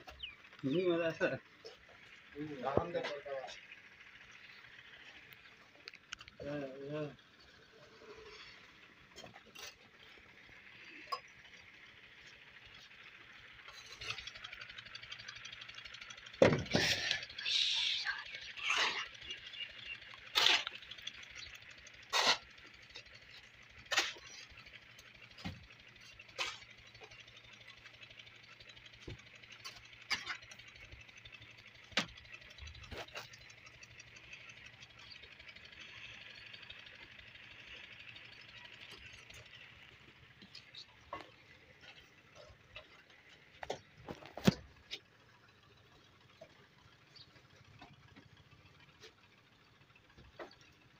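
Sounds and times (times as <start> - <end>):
shovel scraping metal mortar pan: 20.3 - 20.8, 22.1 - 22.5.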